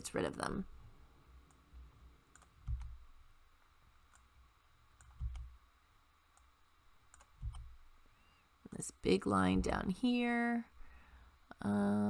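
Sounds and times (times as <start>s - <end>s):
soft low thumps: 2.6s - 3.2s, 5.0s - 5.6s, 7.3s - 8.0s, 9.4s - 10.0s
mouse and keyboard clicks: 5.0s - 5.5s.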